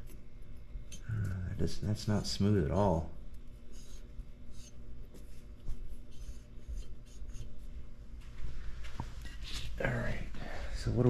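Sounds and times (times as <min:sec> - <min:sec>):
steady low hum: 0:00.0 - 0:11.0
scratchy rubbing: 0:03.6 - 0:07.7.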